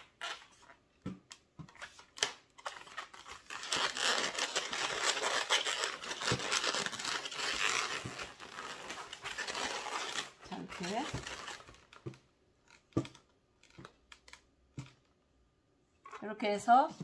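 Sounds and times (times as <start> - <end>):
balloons rubbing together: 3.4 - 11.9.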